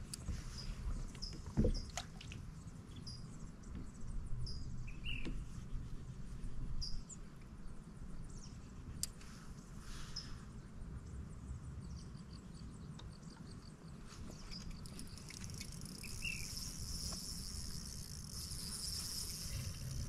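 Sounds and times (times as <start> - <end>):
small birds chirping: 2.6 - 5.5, 11.1 - 20.0.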